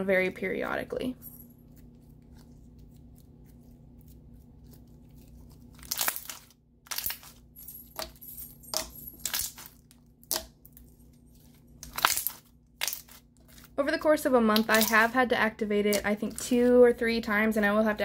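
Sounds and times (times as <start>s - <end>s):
slime popping and crackling: 2.2s - 8.1s, 9.2s - 10.6s, 11.7s - 13.8s, 14.5s - 15.2s.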